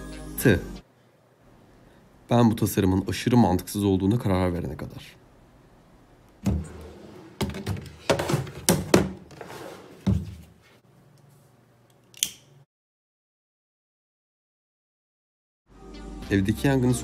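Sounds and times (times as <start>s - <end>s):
drawer knocks and thuds: 6.4s - 10.5s
sharp click: 12.1s - 12.5s.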